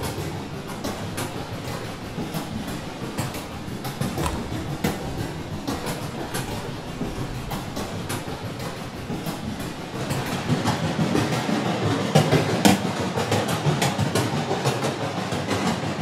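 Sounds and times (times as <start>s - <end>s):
dense clattering clicks: 0.0s - 11.6s
low rumbling noise: 0.0s - 11.9s.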